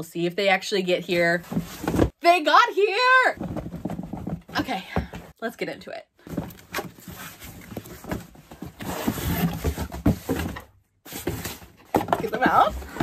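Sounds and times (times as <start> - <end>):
cardboard flaps scraping and rustling: 6.3 - 13.0.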